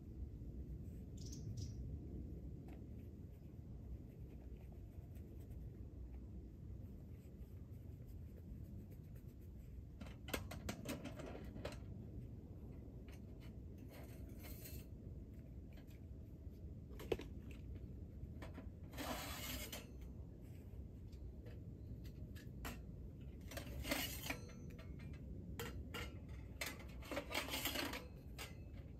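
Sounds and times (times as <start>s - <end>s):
metal scraping: 10.0s - 16.0s, 18.4s - 20.8s, 21.9s - 28.9s.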